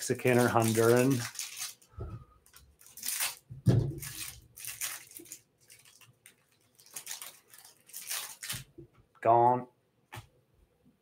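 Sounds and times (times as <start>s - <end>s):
plastic wrapper crinkling and tearing: 0.0s - 8.7s.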